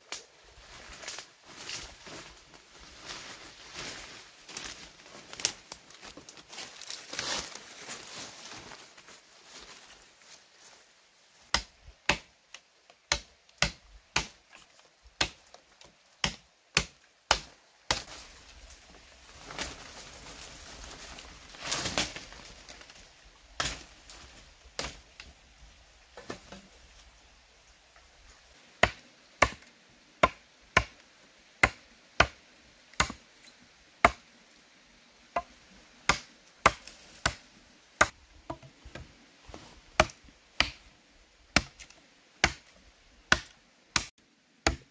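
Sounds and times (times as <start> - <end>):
rustling: 0.1 - 10.9, 18.0 - 25.3.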